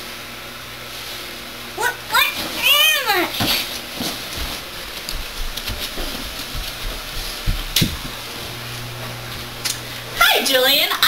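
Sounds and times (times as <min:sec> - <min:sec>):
low steady hum: 0:00.0 - 0:11.0
handling knocks: 0:05.6 - 0:08.2.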